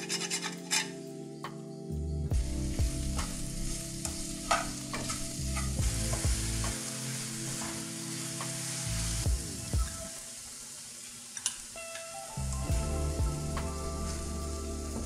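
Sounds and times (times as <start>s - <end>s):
apples sizzling in a frying pan: 2.4s - 15.0s
spatula knocking and scraping pan: 4.5s - 6.8s.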